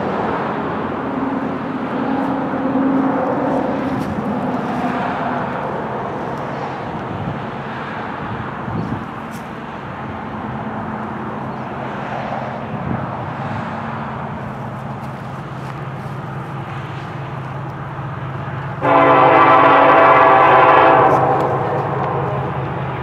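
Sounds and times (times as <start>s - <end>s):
diesel locomotive engine drone: 0.0s - 23.0s
locomotive air horn chord: 18.8s - 22.6s.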